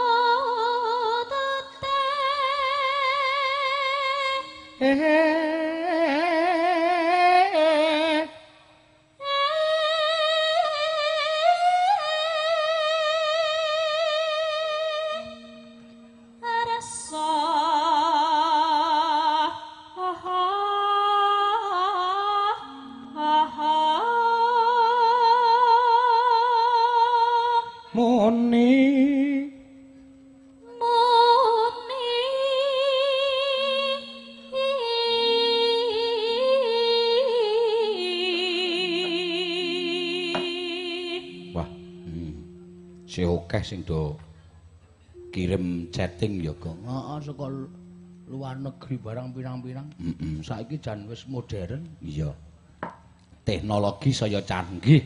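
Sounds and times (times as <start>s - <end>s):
woman singing with vibrato: 0.0s - 29.9s, 30.6s - 43.2s
sustained instrumental notes: 1.2s - 25.9s, 27.0s - 55.0s.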